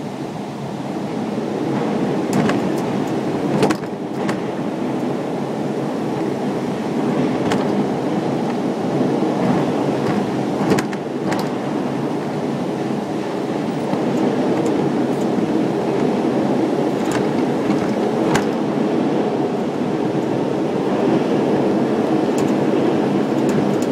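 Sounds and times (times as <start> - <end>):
tram mechanical running noise: 0.0 - 23.9.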